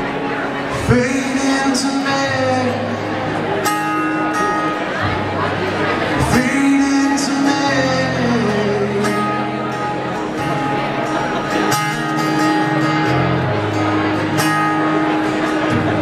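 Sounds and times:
acoustic guitar strumming: 0.0s - 16.0s
man singing: 0.7s - 3.4s, 6.1s - 10.1s.

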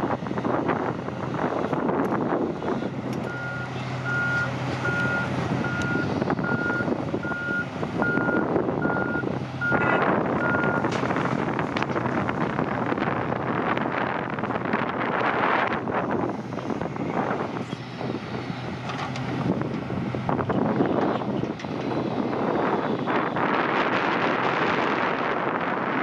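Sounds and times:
diesel engines running: 0.0s - 26.0s
reversing alarm beeping: 3.3s - 10.8s.

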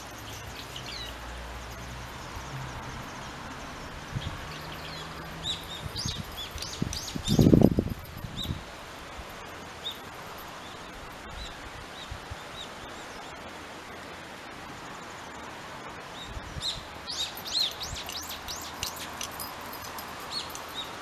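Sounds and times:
small birds chirping: 0.0s - 2.5s, 4.1s - 8.6s, 16.2s - 21.0s
outdoor background noise: 0.0s - 21.0s.

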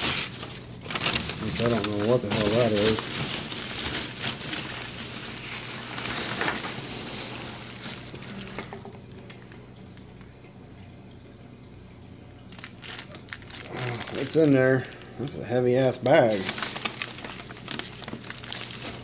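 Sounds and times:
packing peanuts rustling: 0.0s - 8.7s, 12.5s - 19.0s
plastic bag crinkling: 0.0s - 9.7s, 12.4s - 19.0s.

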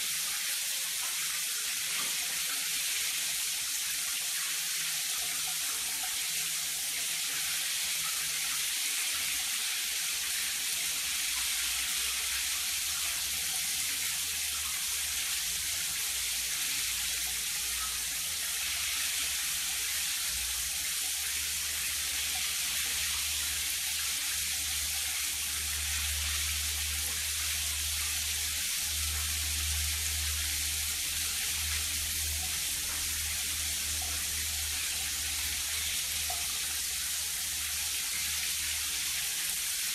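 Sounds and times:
shower water running: 0.0s - 39.9s.

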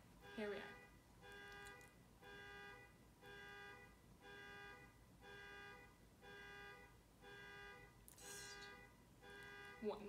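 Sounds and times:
car alarm blaring: 0.2s - 10.0s.

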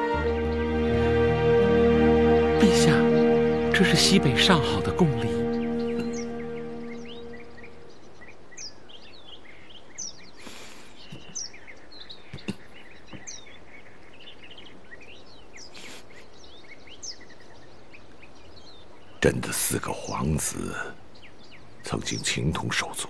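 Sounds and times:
held music chord: 0.0s - 8.1s
songbirds chirping: 0.0s - 23.0s.

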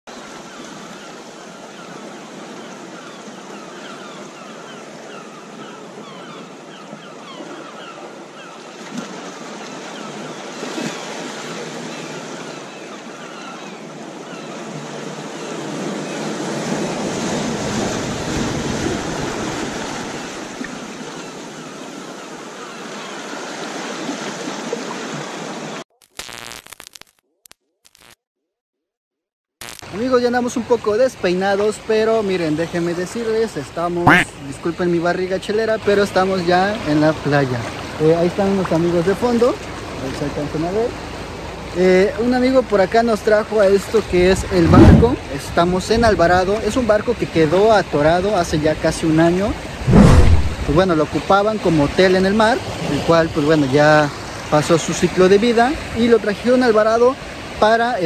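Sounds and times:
wind: 0.1s - 25.8s, 29.6s - 58.0s
ocean surf washing onto beach: 14.8s - 25.8s, 36.4s - 58.0s.

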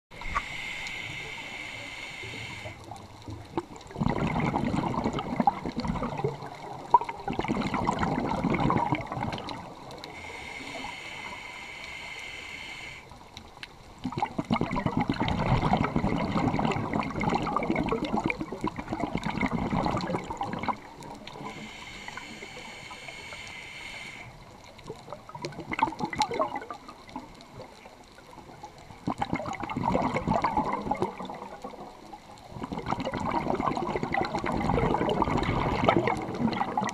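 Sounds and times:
exhaled bubbles gurgling: 0.1s - 36.9s
hissing regulator inhalations: 0.2s - 2.9s, 10.0s - 13.2s, 21.3s - 24.4s.

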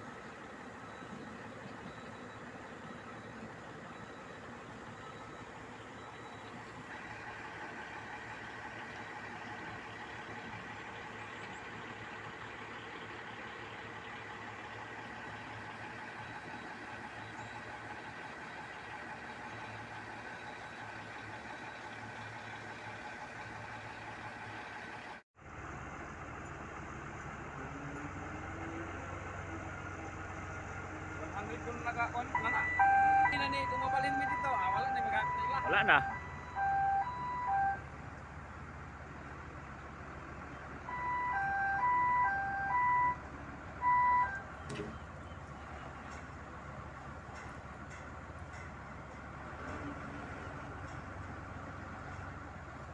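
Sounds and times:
heavy diesel engine running: 0.0s - 52.9s
two-tone warning alarm: 32.0s - 37.9s, 40.9s - 43.2s, 43.8s - 44.5s.

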